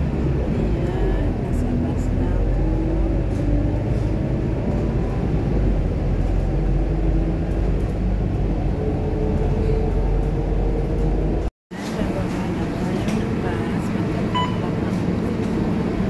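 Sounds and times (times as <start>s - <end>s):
bus engine and road rumble: 0.0s - 16.0s.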